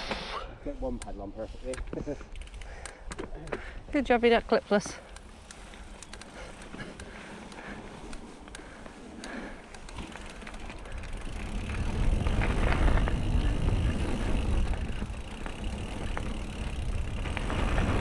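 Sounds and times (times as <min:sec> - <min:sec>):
bike tyres crunching on gravel: 0:04.7 - 0:18.0.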